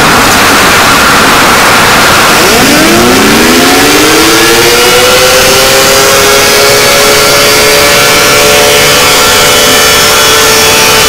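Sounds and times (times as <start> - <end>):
loud distorted static: 0.0 - 11.0
siren winding up: 1.9 - 11.0.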